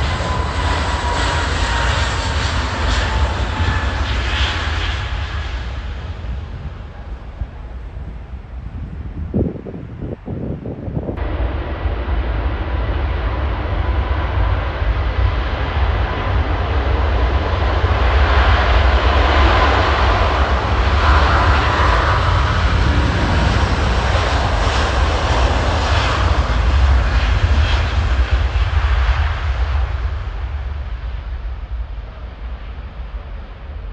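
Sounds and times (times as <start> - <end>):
jet engines roaring: 0.0 - 33.9
thin jet engine whine: 0.0 - 33.9.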